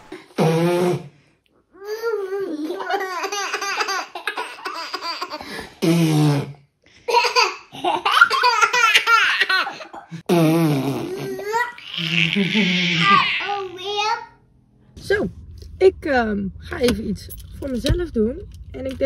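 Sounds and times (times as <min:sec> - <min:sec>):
young children laughing and babbling: 0:01.8 - 0:05.4, 0:11.1 - 0:14.4.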